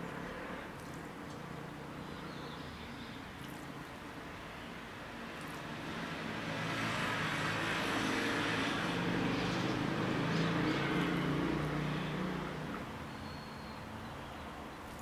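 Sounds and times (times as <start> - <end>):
vehicle passing by: 5.4 - 13.0.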